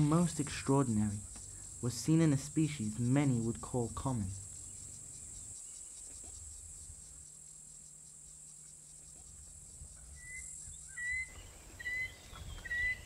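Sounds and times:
high-pitched insect chorus: 0:00.0 - 0:13.0
whistled bird calls: 0:10.1 - 0:13.0.

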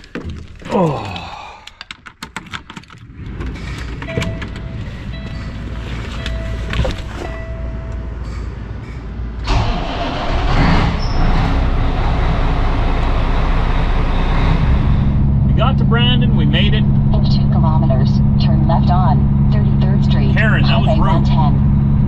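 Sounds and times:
diesel engine starting and idling: 0:02.9 - 0:22.0
dashboard warning beeps: 0:04.0 - 0:09.0, 0:17.2 - 0:21.6.

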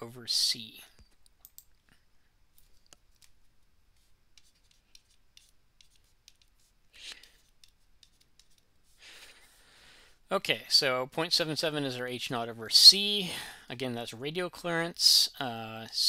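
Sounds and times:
stylus scratching on a tablet: 0:03.9 - 0:09.0.

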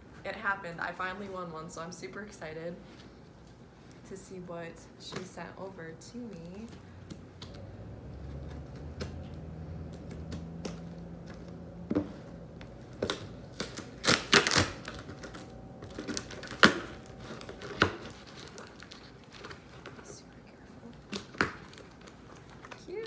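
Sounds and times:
packaging rustling: 0:08.4 - 0:23.0.

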